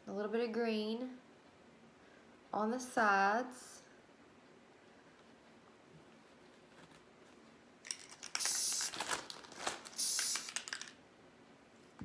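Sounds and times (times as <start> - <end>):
aerosol spray hissing: 8.4 - 8.9, 10.0 - 10.7.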